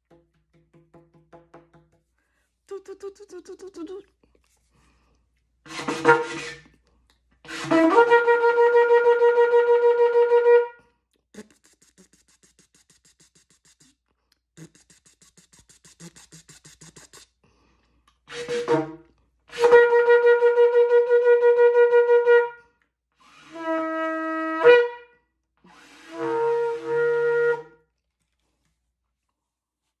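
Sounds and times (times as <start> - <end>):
shofar blasts: 7.5 - 10.8, 18.3 - 22.6, 23.4 - 25.1, 26.1 - 27.8.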